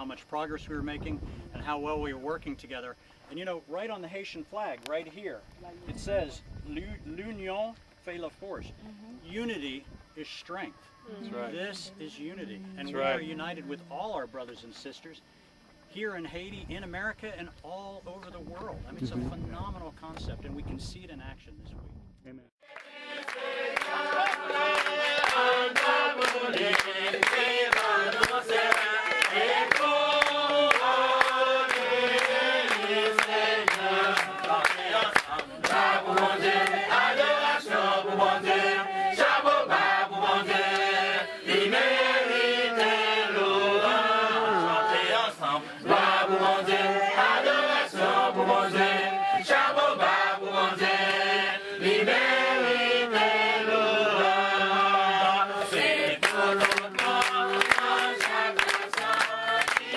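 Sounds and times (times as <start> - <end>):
group of voices singing: 22.6 - 59.9.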